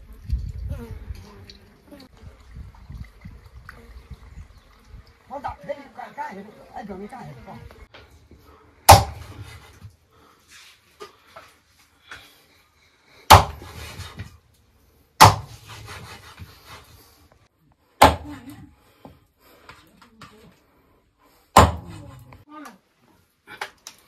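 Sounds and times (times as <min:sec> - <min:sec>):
heavy blows on wood: 0:08.9 - 0:09.7, 0:13.3 - 0:14.4, 0:15.2 - 0:16.8, 0:21.5 - 0:22.2.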